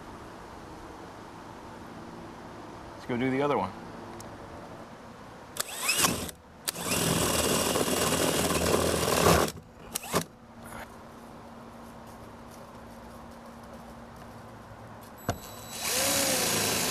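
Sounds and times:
cordless drill driving a screw: 5.6s - 10.3s, 15.3s - 16.9s.

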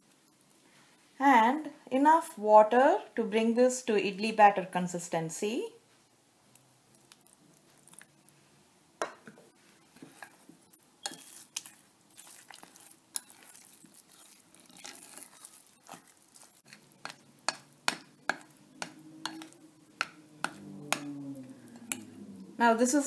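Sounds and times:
spoon scraping wet batter: 9.8s - 22.2s
spoon clinking against dish: 18.3s - 21.1s.

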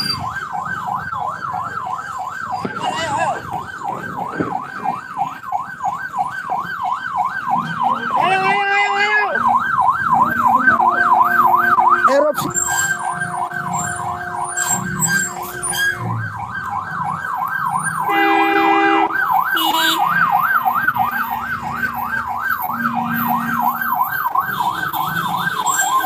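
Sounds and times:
emergency siren yelping: 0.0s - 26.0s
vehicle horn blast: 18.1s - 20.0s.

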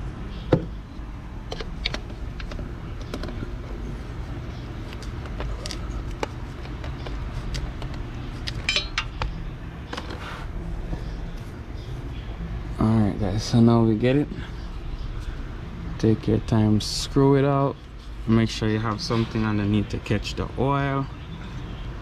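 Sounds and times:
steady low hum: 0.0s - 22.0s
metallic tool clicks and clinks: 8.5s - 9.2s.

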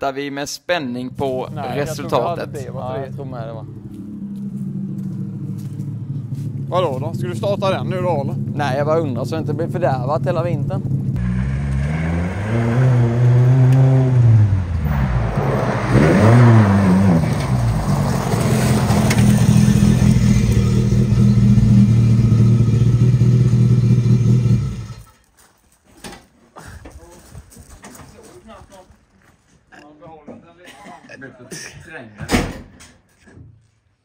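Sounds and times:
rally car engine revving: 1.1s - 25.0s.

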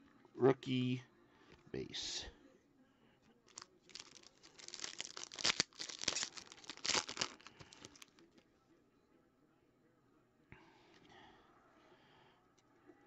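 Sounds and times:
foil wrapper tearing and crinkling: 3.5s - 8.2s.

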